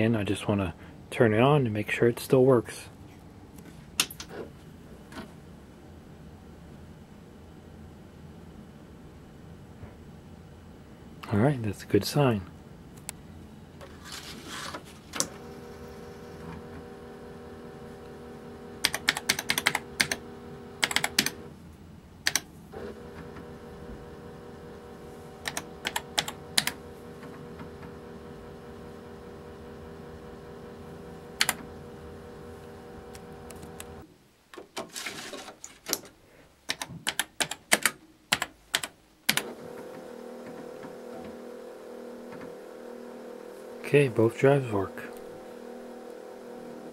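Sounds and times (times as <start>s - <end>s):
floppy drive motor hum: 15.2s - 21.6s, 22.7s - 34.0s, 39.3s - 46.9s
keyboard keys typing: 18.8s - 21.4s, 22.2s - 22.5s, 25.4s - 26.8s, 31.4s - 31.7s, 36.6s - 39.4s.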